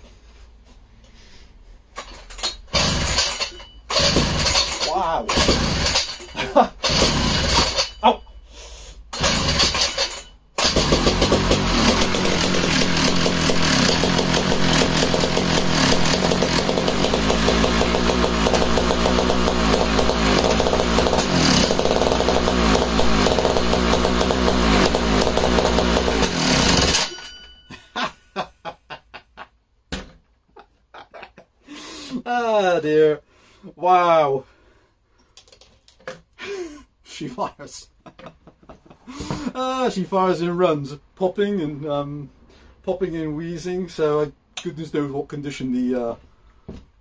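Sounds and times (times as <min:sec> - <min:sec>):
engine dying with irregular pops: 0:02.7 - 0:06.2, 0:10.6 - 0:27.0
two-stroke chainsaw engine running: 0:02.7 - 0:07.9, 0:09.2 - 0:27.2.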